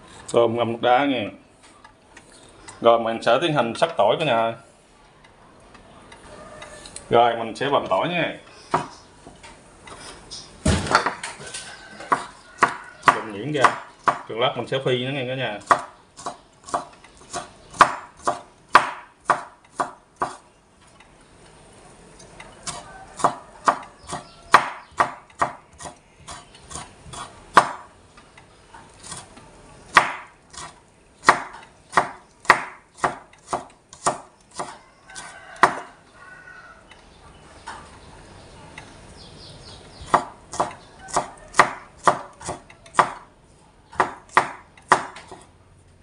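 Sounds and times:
knife chopping on wooden board: 8.7 - 9.0, 12.0 - 14.3, 15.6 - 20.4, 22.6 - 27.9, 29.9 - 35.9, 40.0 - 43.3, 44.0 - 45.5.

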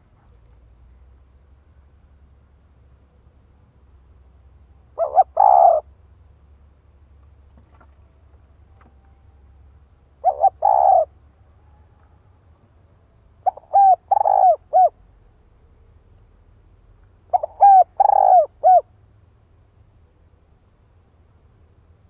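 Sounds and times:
dove cooing: 4.9 - 5.9, 10.2 - 12.2, 13.4 - 15.0, 17.3 - 18.9.

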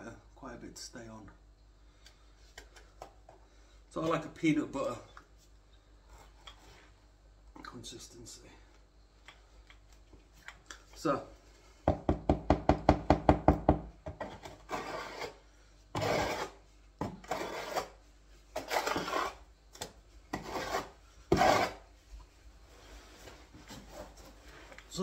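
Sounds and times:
trowel scraping bucket: 14.3 - 15.4, 16.0 - 16.6, 17.2 - 19.4, 20.3 - 21.9.

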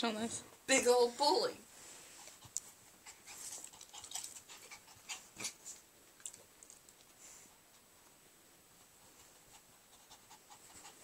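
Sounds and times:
dog panting: 2.2 - 5.8, 8.8 - 11.0.

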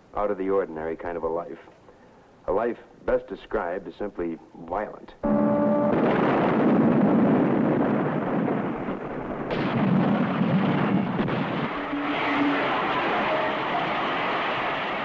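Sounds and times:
loud rumbling roar: 11.4 - 15.0.

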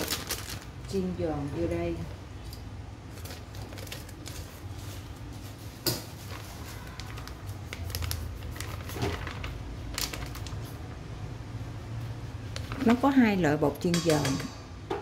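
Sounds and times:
plastic packet crinkling: 0.0 - 1.0, 3.1 - 4.8, 6.2 - 10.9.

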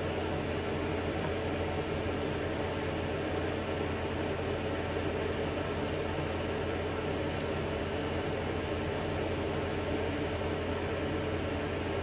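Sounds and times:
fan noise with low hum: 0.0 - 12.0.

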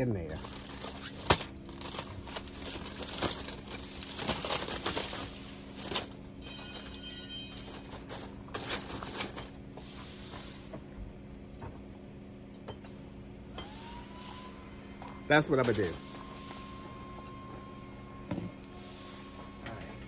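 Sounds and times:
steady low hum: 0.0 - 20.0
rustling and clicking handling: 0.3 - 9.6.

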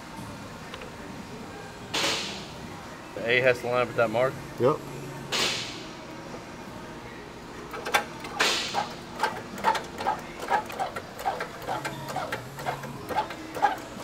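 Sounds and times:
hydraulic press clicking and creaking: 7.7 - 14.0.

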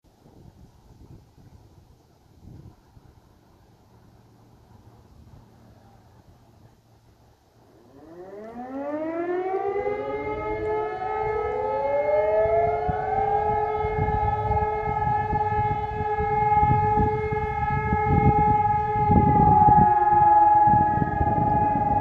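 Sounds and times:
motor sirens winding up: 7.9 - 22.0.

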